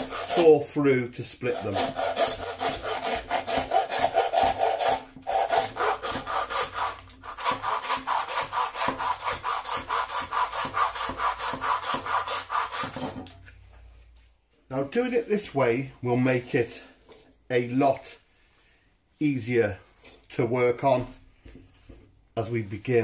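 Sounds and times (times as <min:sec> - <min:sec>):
hand saw rasping on bone: 0:00.0 - 0:00.7, 0:01.4 - 0:13.3.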